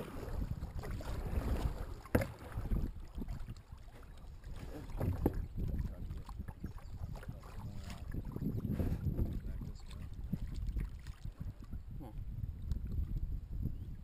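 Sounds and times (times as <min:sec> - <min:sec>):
kayak paddle splashing: 0:00.0 - 0:11.8
wind rumbling on microphone: 0:00.0 - 0:14.0.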